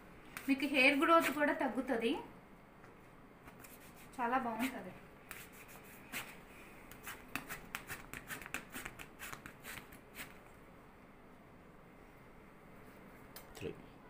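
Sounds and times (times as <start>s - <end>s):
waxing strip rustling scrapes: 7.0s - 10.4s.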